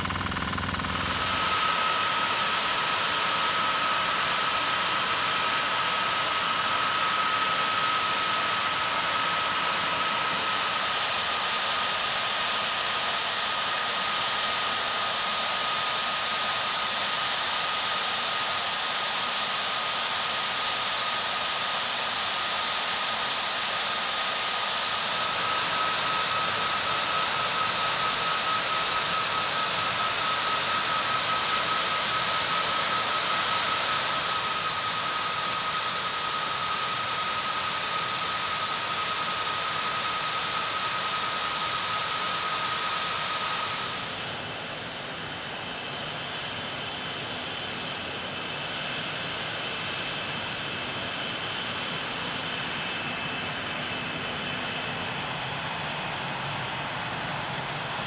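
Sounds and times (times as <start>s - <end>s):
jet engines running: 0.0s - 58.0s
whistling jet whine: 0.0s - 58.0s.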